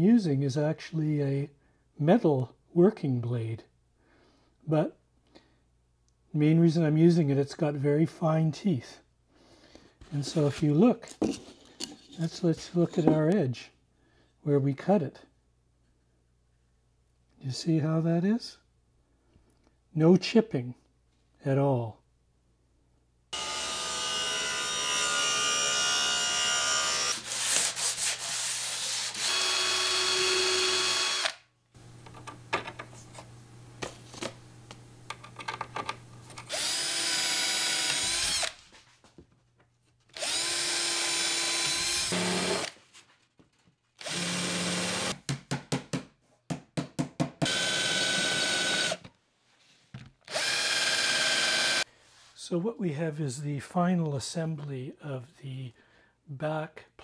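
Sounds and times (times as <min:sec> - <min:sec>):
power drill motor whine: 0:23.4 - 0:27.2, 0:29.2 - 0:31.4, 0:36.5 - 0:38.6, 0:40.2 - 0:42.7, 0:44.0 - 0:45.2, 0:47.4 - 0:49.1, 0:50.3 - 0:51.8.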